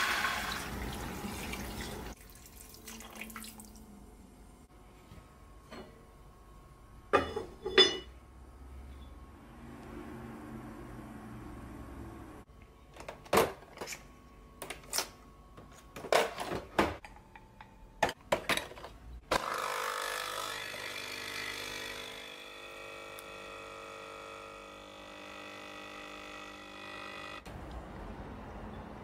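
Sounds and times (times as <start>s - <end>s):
coffee machine pump humming: 21.1s - 27.5s.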